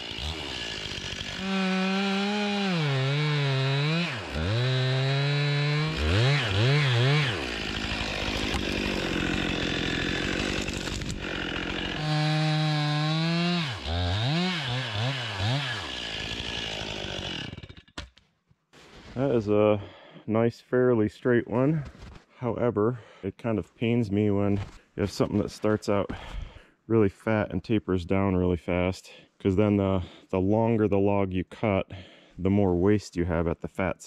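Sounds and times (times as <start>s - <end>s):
chainsaw cutting wood revving: 0.0s - 18.0s.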